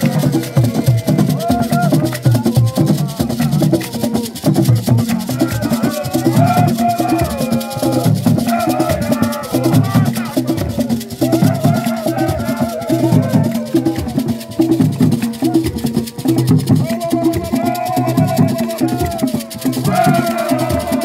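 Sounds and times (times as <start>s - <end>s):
beaded gourd rattles: 0.0s - 21.0s
group singing: 0.0s - 21.0s
handclaps: 0.0s - 21.0s
wooden barrel drums: 0.0s - 21.0s.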